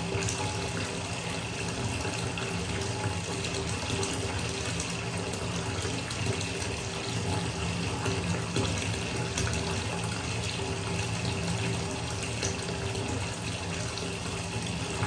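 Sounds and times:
tap water splashing into bath: 10.9s - 15.0s.

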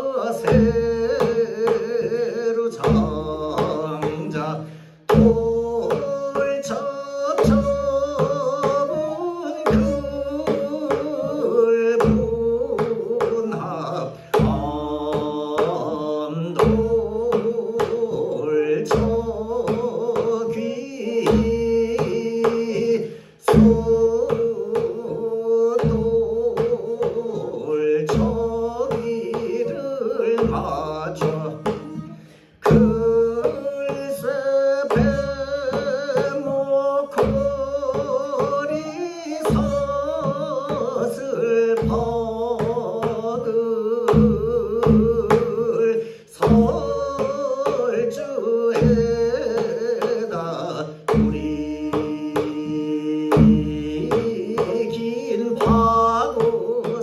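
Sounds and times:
man singing long held notes: 0.0s - 57.0s
bamboo flute: 37.2s - 41.2s.

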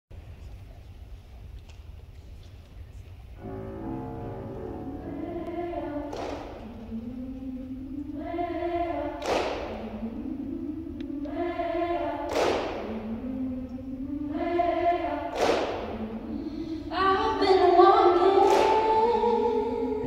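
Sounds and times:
women's choir singing: 3.4s - 20.0s.

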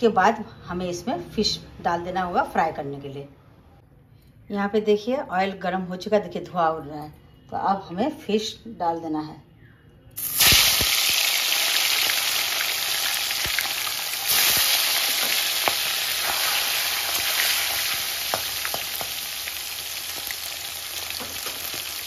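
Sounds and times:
fish sizzling in hot oil: 10.2s - 22.0s
spatula tapping pan: 17.9s - 19.3s, 21.1s - 22.0s.

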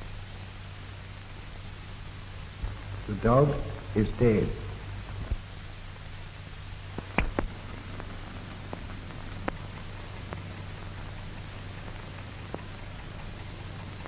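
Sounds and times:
film soundtrack hiss and hum: 0.0s - 14.0s
clicks and pops: 6.9s - 10.5s.

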